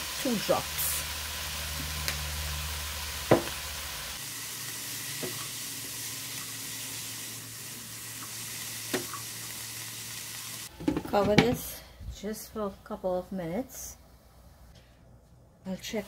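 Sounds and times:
vegetables sizzling in oil: 0.0s - 10.8s.

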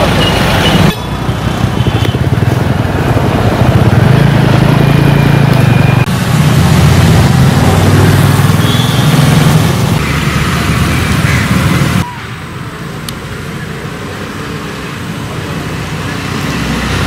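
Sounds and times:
vehicle engine running: 1.1s - 12.0s.

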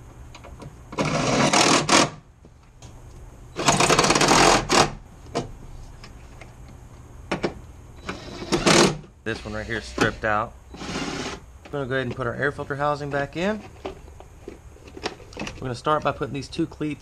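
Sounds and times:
cordless power driver running: 9.7s - 11.4s.

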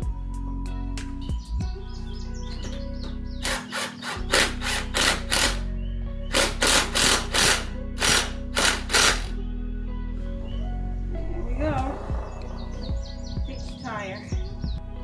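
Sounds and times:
background music: 0.0s - 15.0s
drill-driver bursts: 3.4s - 5.7s, 6.3s - 9.3s.

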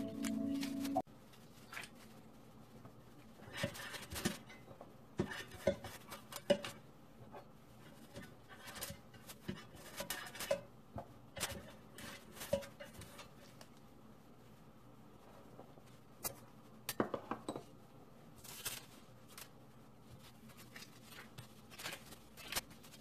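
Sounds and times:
background music: 0.0s - 1.0s
brush tapping and scraping metal pan: 3.4s - 13.6s.

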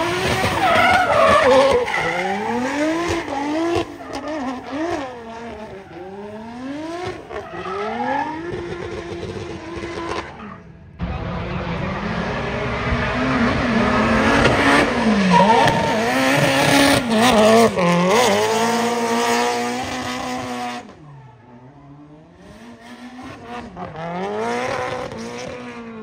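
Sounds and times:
car engine revving hard: 11.1s - 21.0s, 22.3s - 26.0s.

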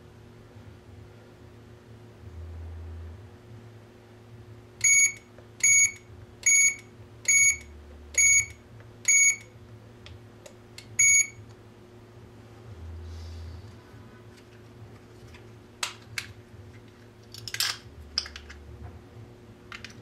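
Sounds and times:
alarm keypad beeps: 4.8s - 7.6s, 8.2s - 9.4s, 11.0s - 11.4s.

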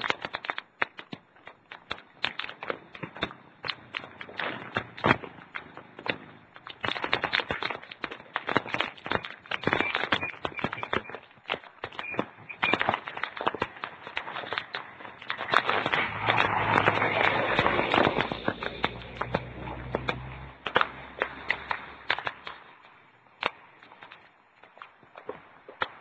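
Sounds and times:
wind and rain on microphone: 0.0s - 26.0s
rushing gust with low rumble: 14.8s - 22.8s.

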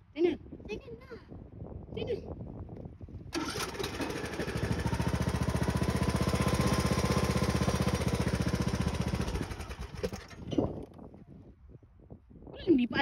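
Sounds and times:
lawn tractor engine turning over: 3.3s - 11.0s.

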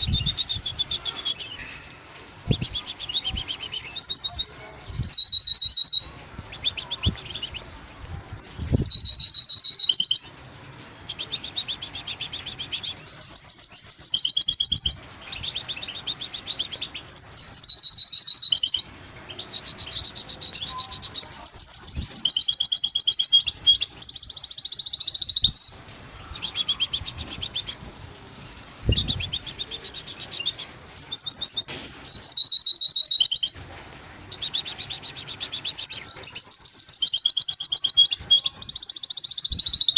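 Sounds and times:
bird singing trills: 0.0s - 10.4s, 11.0s - 27.9s, 28.8s - 33.6s, 34.2s - 39.9s.

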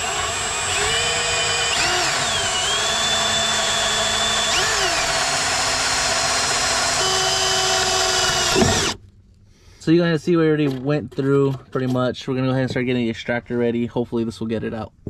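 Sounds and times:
electric drill whining under load: 0.0s - 9.0s.

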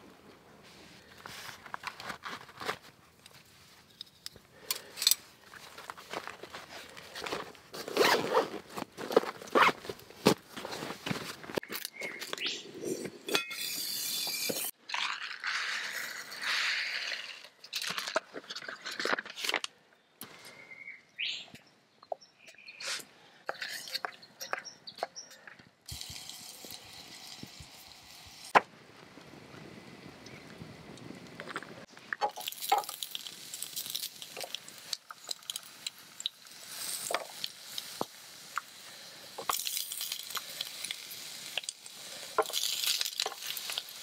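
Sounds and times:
utensils scraping and knocking: 12.9s - 14.7s.

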